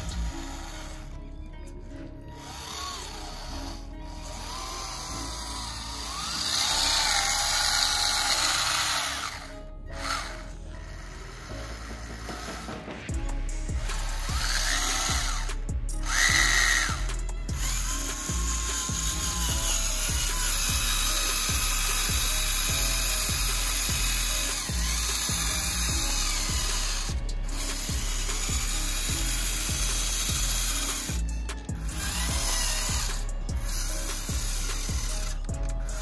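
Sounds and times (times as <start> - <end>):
small electric motor buzzing: 0.0 - 1.2, 2.3 - 36.0
regular low beat: 9.5 - 36.0.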